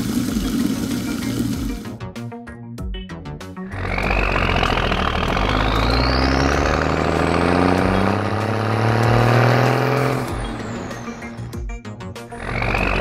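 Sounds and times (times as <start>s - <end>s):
dump truck engine revving: 3.7s - 11.6s, 12.3s - 13.0s
high rising whine: 3.8s - 11.5s.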